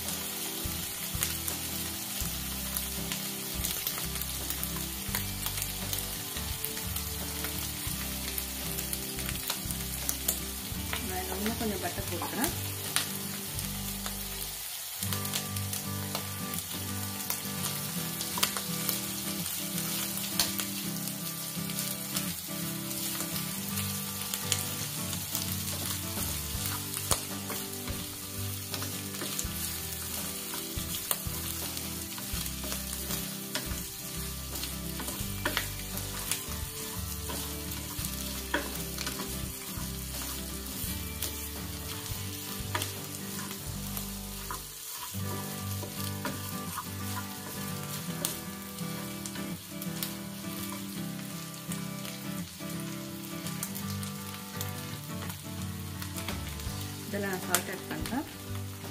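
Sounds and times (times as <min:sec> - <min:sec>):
food sizzling in a frying pan: 0:00.0 - 0:58.9
small pops of frying: 0:00.0 - 0:58.9
wooden spatula scraping a pan: 0:44.4 - 0:48.4.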